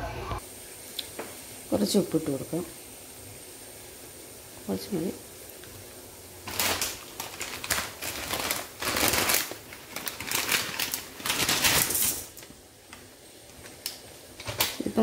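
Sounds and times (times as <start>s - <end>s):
plastic packet crinkling: 6.4s - 12.5s, 13.5s - 15.0s.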